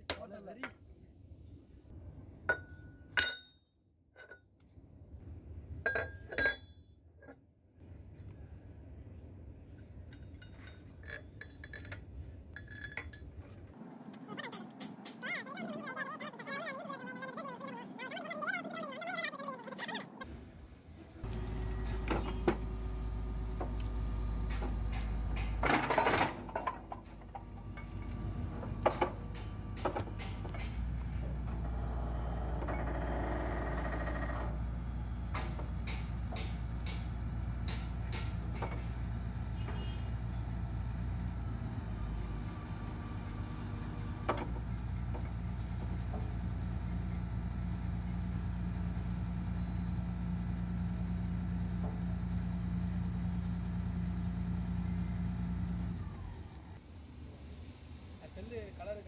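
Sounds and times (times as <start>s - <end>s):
metal chains clanking: 10.0s - 13.6s
excavator engine running: 13.8s - 40.0s, 40.7s - 58.0s.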